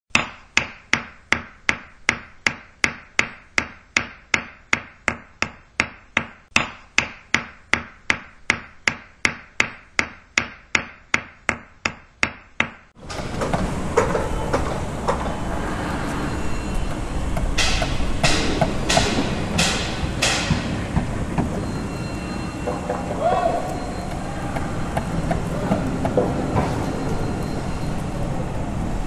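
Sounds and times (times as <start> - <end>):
sharp ringing ticks: 23.6 - 26.2.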